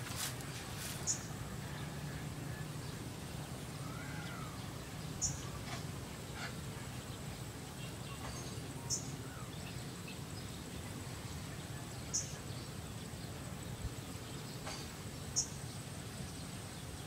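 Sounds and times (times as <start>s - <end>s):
high insect hum: 0.0s - 17.0s.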